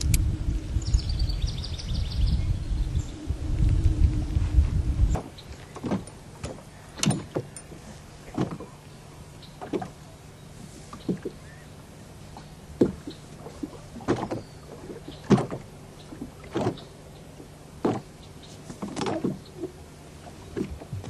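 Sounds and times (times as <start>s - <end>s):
steady low hum: 0.0s - 14.0s
water slapping against boat hull: 5.1s - 8.8s, 9.6s - 10.0s, 10.6s - 11.5s, 12.4s - 21.0s.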